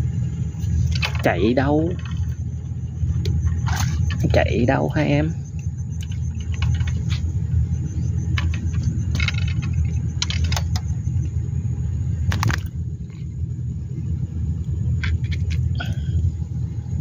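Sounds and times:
steady low rumble: 0.0s - 17.0s
clicks and rustles of fish handling: 3.4s - 4.4s.

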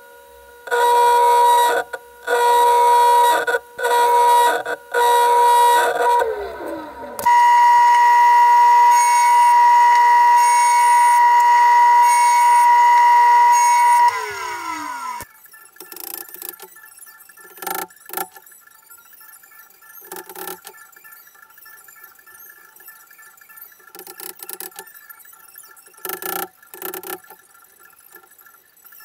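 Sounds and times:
table saw whining: 0.2s - 15.3s.

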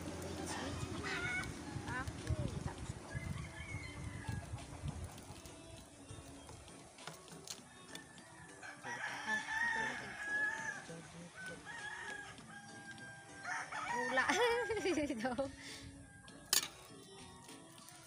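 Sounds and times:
rooster crowing: 3.1s - 4.6s, 7.6s - 15.0s.

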